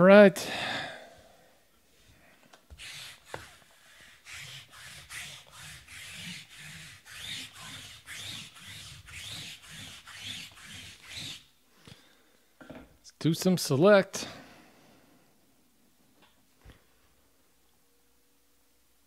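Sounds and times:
cards sliding with papery swish: 2.7s - 11.5s.

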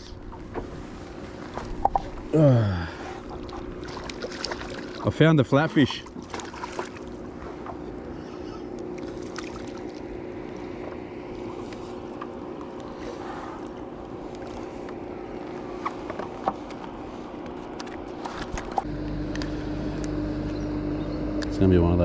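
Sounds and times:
low steady hum: 0.0s - 22.0s
water rushing along a hull: 3.0s - 19.4s.

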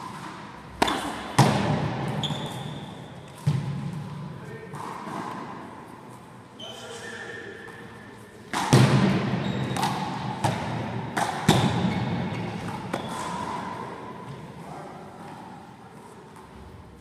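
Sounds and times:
trainers squeaking on floor: 2.2s - 3.0s, 9.4s - 9.9s
ball smacking off wall and floor: 8.5s - 11.9s.

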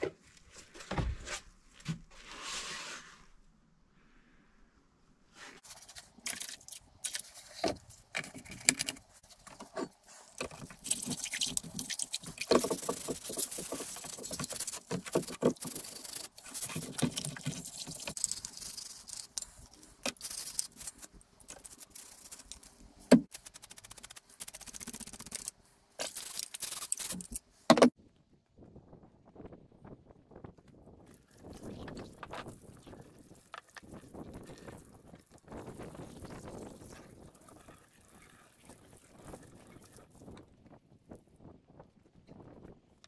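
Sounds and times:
liquid sloshing: 5.6s - 22.8s.

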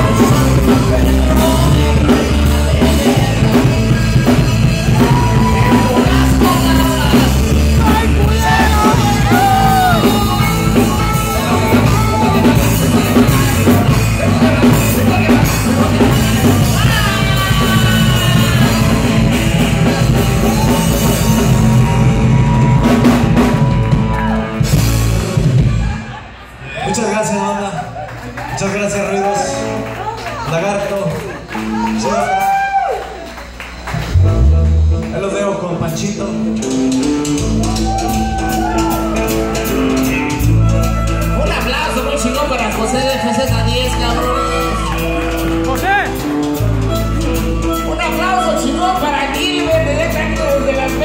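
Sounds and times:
man singing into a microphone: 0.0s - 20.7s
drum kit: 0.0s - 26.2s, 31.5s - 51.0s
electric guitar: 0.0s - 26.3s, 29.2s - 51.0s.

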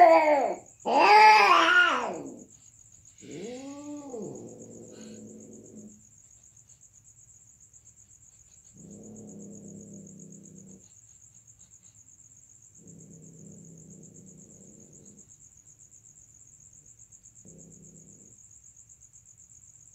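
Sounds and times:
cat growling yowl: 0.0s - 2.5s, 3.2s - 6.0s, 8.8s - 10.9s, 17.4s - 18.3s
cats caterwauling: 0.0s - 2.5s, 3.2s - 6.0s
crickets chirring: 0.0s - 19.9s.

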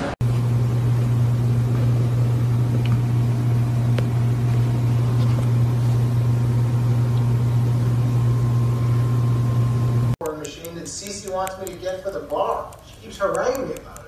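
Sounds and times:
low mechanical hum: 0.0s - 14.0s
faint clicks: 10.2s - 14.0s.

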